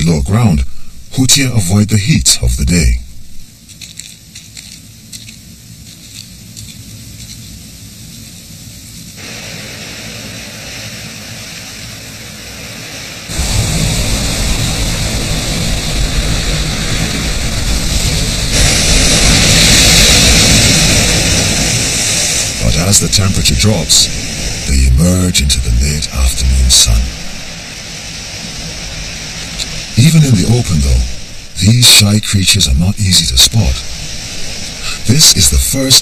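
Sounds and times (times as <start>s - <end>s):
faint air hiss: 0.0s - 36.0s
surf breaking on rocky shore: 9.2s - 36.0s.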